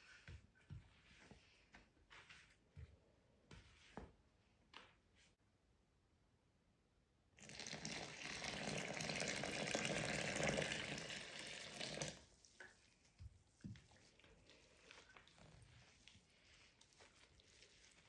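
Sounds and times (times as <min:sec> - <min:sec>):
spatula stirring wet flour: 0:00.0 - 0:02.6, 0:12.2 - 0:18.0
water pouring into bowl: 0:07.4 - 0:12.2.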